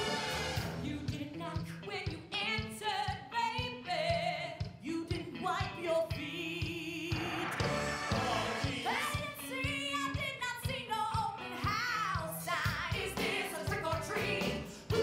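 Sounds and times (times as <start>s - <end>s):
steady drum beat: 6.2s - 15.0s.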